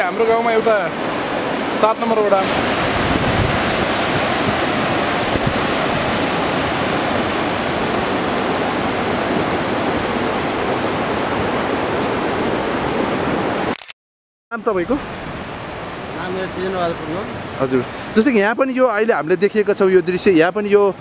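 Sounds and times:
river rushing over rocks: 0:00.0 - 0:13.7.

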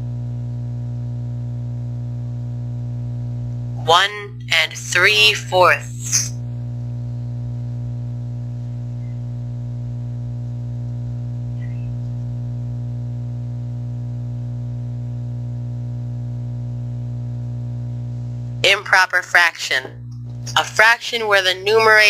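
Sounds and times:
steady low-pitched hum: 0:00.0 - 0:22.0.

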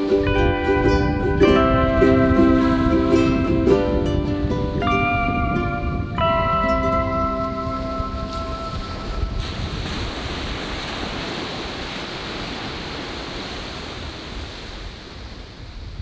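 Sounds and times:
musical tune: 0:00.0 - 0:09.7
surf washing onto beach: 0:00.0 - 0:16.0
wind rumbling on microphone: 0:00.0 - 0:16.0.

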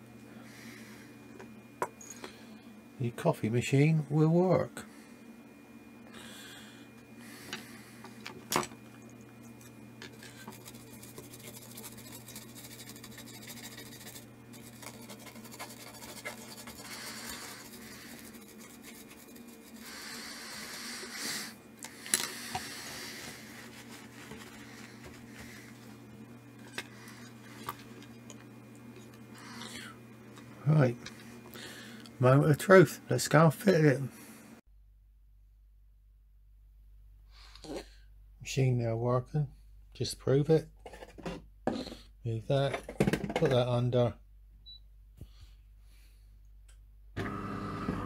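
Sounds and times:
steady low hum: 0:00.0 - 0:48.0
hands rubbing circuit board on mat: 0:10.2 - 0:20.3.

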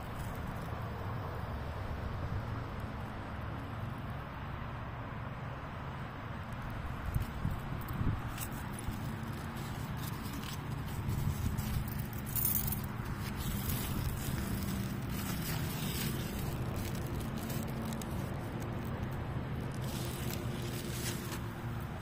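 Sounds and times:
plants rustling and crackling: 0:00.0 - 0:00.9, 0:06.4 - 0:22.0.

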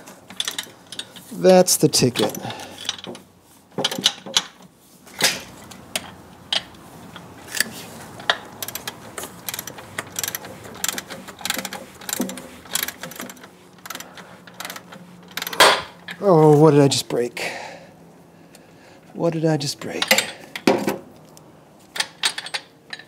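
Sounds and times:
hand ratchet clicking: 0:05.9 - 0:15.8
steel wrench clinking on bolt: 0:19.9 - 0:20.6.

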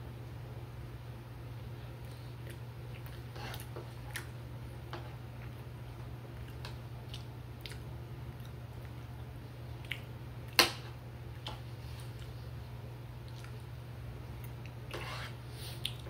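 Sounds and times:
person chewing: 0:02.0 - 0:04.4, 0:06.4 - 0:09.0, 0:09.7 - 0:10.6, 0:11.3 - 0:12.5, 0:13.2 - 0:13.7, 0:15.7 - 0:16.0.

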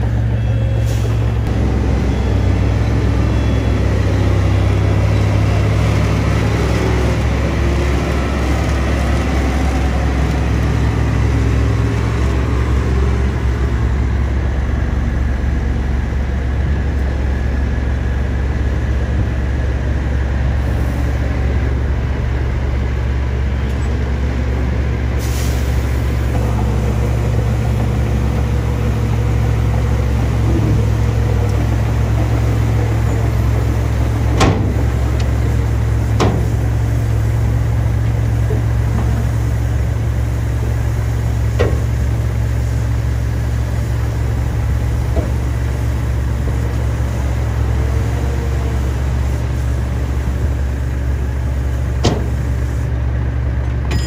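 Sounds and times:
diesel truck engines droning: 0:00.0 - 0:54.0
air brake hiss: 0:25.2 - 0:26.2.

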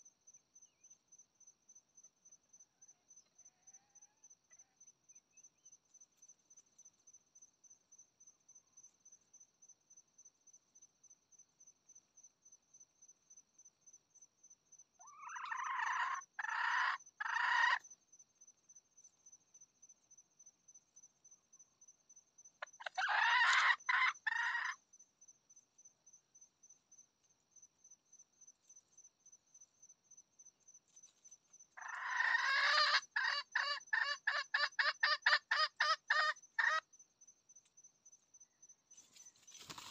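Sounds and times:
insect chirping: 0:00.0 - 0:39.9
rooster crowing: 0:31.8 - 0:33.8.

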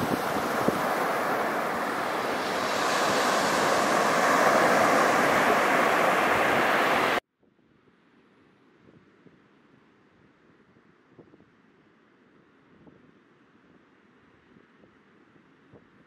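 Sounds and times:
surf washing onto sandy beach: 0:00.0 - 0:07.2
wind on microphone: 0:00.0 - 0:07.2.

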